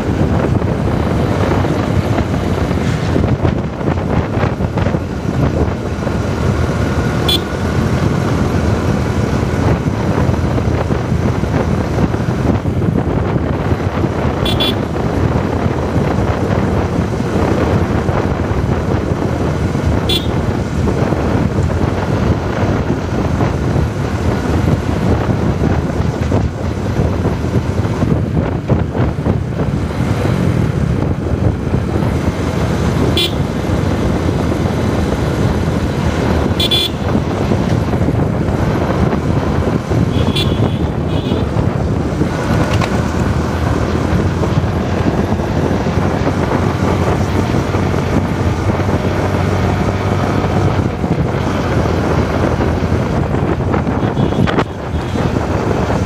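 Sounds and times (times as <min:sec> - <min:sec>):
motorcycle engine: 0:00.0 - 0:56.0
road noise: 0:00.0 - 0:56.0
vehicle horn toots: 0:07.2 - 0:07.6, 0:14.4 - 0:14.9, 0:20.0 - 0:20.4, 0:33.1 - 0:33.5, 0:36.4 - 0:37.2, 0:40.1 - 0:41.5, 0:54.0 - 0:55.3.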